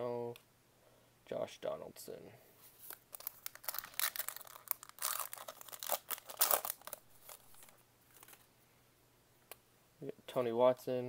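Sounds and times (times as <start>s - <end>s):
handling of cards: 2.6s - 8.5s
foil wrapper tearing and crinkling: 2.9s - 8.4s.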